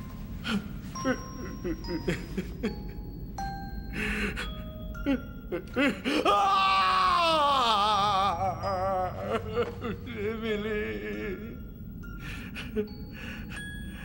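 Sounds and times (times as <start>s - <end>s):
music with bell-like chimes: 0.0s - 6.3s, 7.8s - 14.0s
man sobbing and gasping: 0.4s - 3.1s, 3.9s - 14.0s
man wailing: 5.6s - 11.6s.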